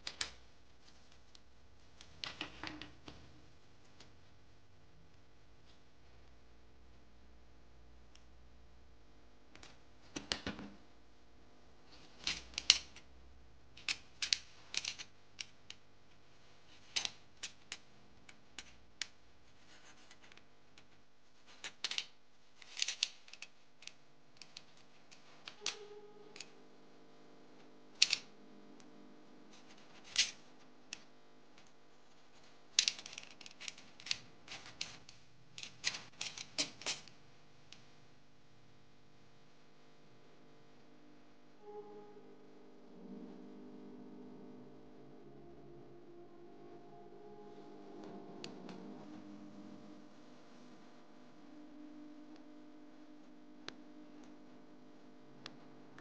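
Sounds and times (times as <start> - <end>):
knife scraping wire insulation: 19.5 - 20.4
scissors snipping wire: 28.0 - 28.3.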